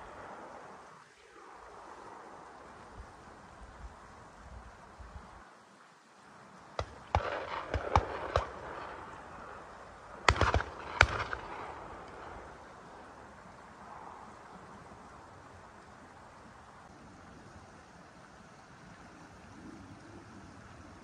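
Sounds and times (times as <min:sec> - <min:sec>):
shotgun shots with echo: 0:06.8 - 0:12.5.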